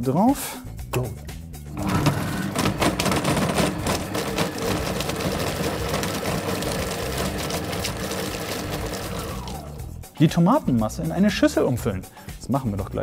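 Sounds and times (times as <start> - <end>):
food processor blade chopping: 1.8 - 9.8.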